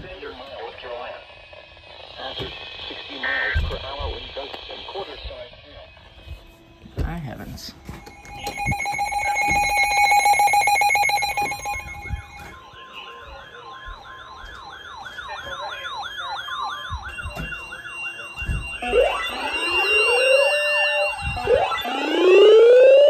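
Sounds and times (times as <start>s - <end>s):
pulsing alarm tone: 7.7s - 23.0s
warbling siren-like alert tones: 7.8s - 23.0s.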